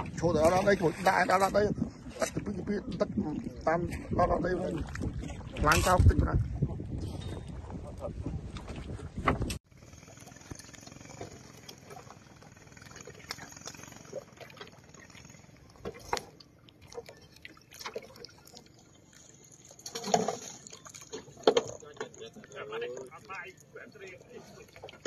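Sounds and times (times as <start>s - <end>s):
water splashing and dripping: 3.3s - 6.0s, 10.0s - 25.0s.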